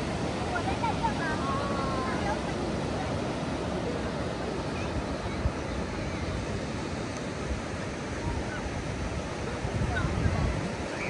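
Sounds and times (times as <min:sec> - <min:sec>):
ocean surf on beach: 0:00.0 - 0:11.0
wind on microphone: 0:00.0 - 0:11.0.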